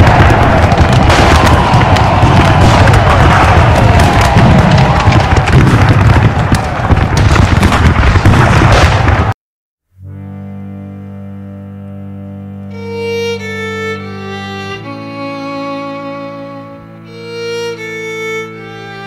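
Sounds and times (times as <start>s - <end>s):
battle noise with low booms: 0.0s - 9.4s
slow string music: 10.0s - 19.0s
violin melody: 10.0s - 19.0s.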